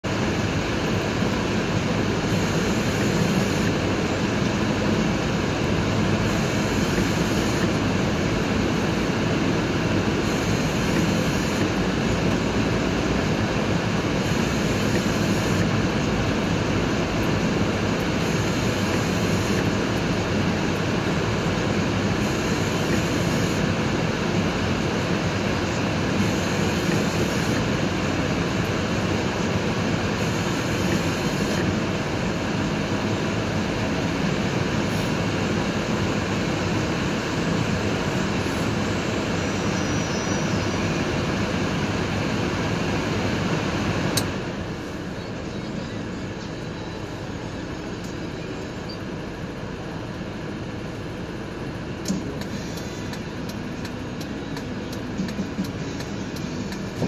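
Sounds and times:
car engine running: 0.0s - 57.0s.

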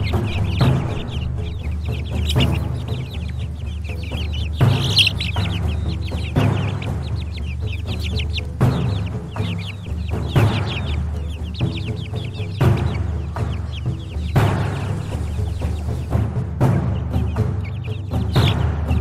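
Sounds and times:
background music with hits: 0.0s - 19.0s
chickens peeping: 0.0s - 19.0s.

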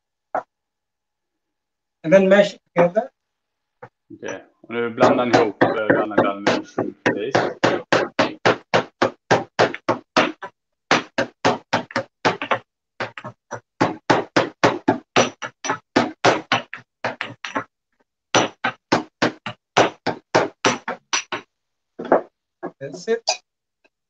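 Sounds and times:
pestle pounding in mortar: 5.0s - 17.7s, 18.3s - 22.8s.

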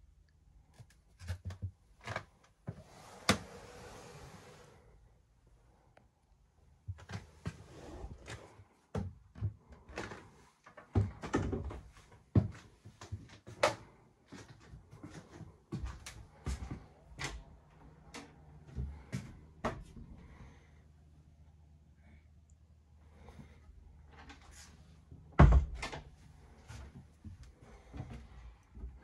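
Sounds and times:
knocks and thumps in wooden cabin: 8.2s - 20.5s, 23.4s - 29.0s
cabin doors opening and closing: 24.2s - 26.2s.

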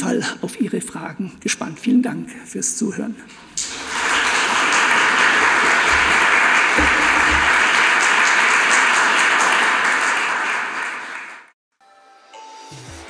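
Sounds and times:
audience applauding: 3.6s - 11.6s.

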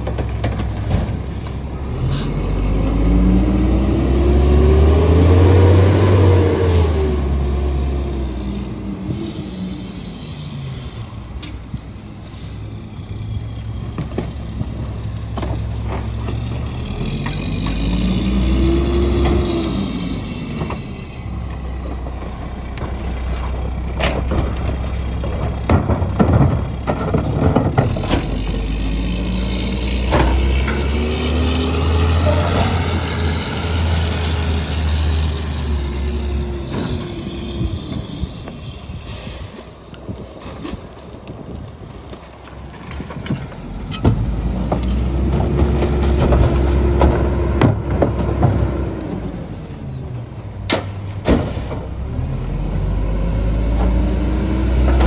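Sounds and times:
trash carts banging on hopper: 0.0s - 2.8s, 13.8s - 37.3s, 42.2s - 53.0s, 53.6s - 55.0s
truck engine revving: 1.6s - 9.7s, 16.0s - 37.9s, 51.1s - 55.0s.

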